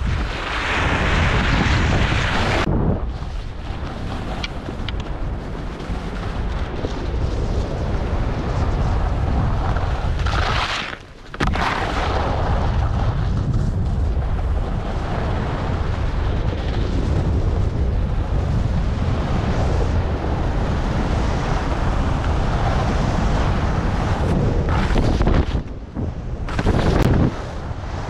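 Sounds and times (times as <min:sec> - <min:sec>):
skis scraping over snow: 0:00.0 - 0:28.0
wind buffeting microphone: 0:00.0 - 0:28.0
ski landing clack: 0:03.7 - 0:07.9, 0:09.6 - 0:14.1, 0:26.4 - 0:27.4.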